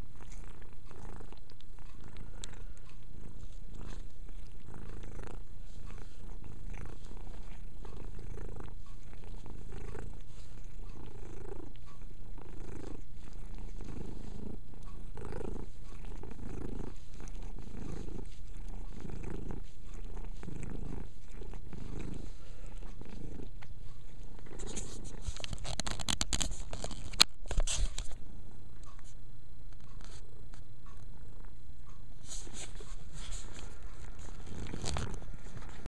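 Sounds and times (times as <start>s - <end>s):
cat purring: 0.0s - 29.2s, 29.8s - 35.9s
loud crackling and clicks: 25.4s - 27.4s.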